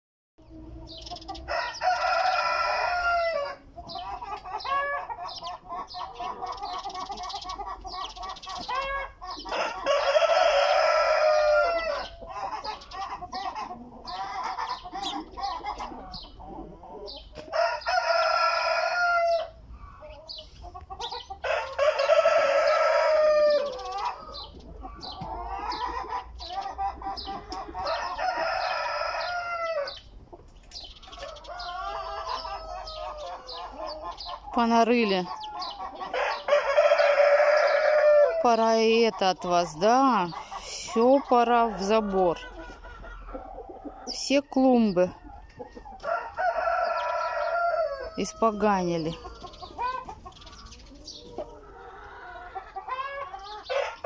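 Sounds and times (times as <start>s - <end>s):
chickens clucking: 0.4s - 54.0s
rooster crowing: 1.5s - 3.6s, 8.9s - 12.1s, 17.5s - 19.6s, 21.4s - 23.8s, 27.8s - 30.0s, 31.2s - 33.6s, 36.2s - 38.5s, 45.3s - 48.8s, 52.1s - 54.0s.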